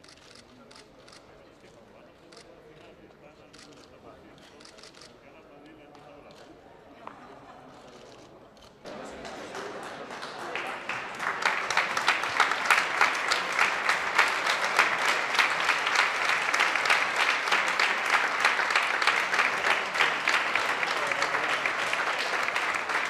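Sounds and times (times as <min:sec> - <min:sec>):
audience applauding: 0:08.9 - 0:23.0.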